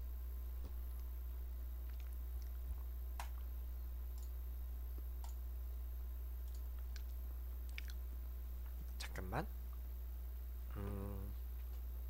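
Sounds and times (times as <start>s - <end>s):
low electrical hum: 0.0s - 12.0s
faint clicks: 4.1s - 4.4s.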